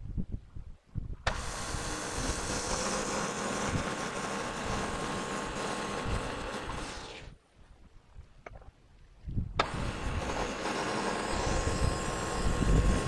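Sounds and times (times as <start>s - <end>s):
bandsaw mill cutting log: 1.3s - 7.4s, 9.6s - 13.0s.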